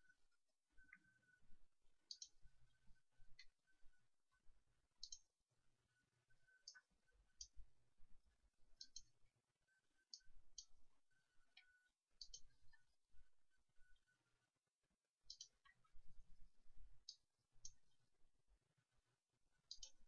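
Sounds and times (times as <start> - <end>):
computer mouse clicks: 2.1 - 2.4, 5.0 - 5.3, 8.8 - 9.1, 11.6 - 12.6, 15.3 - 15.8, 19.7 - 20.0.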